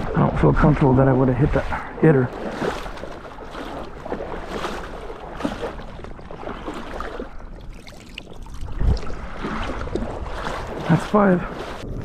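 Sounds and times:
dog swimming splashing water: 1.5 - 12.0
wind rumble on microphone: 3.8 - 12.0.

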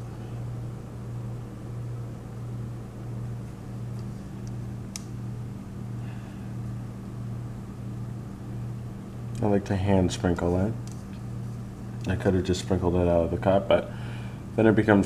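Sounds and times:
low wavering hum: 0.0 - 15.0.

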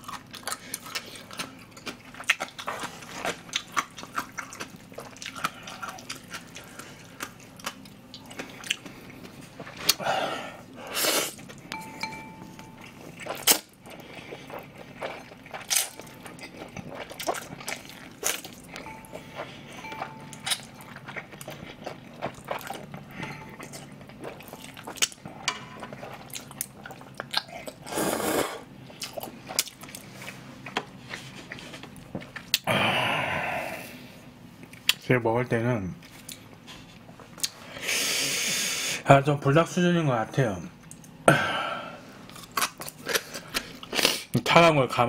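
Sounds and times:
person chewing noodles: 0.0 - 35.0, 40.9 - 44.4
person slurping: 9.8 - 11.4, 27.7 - 28.6.

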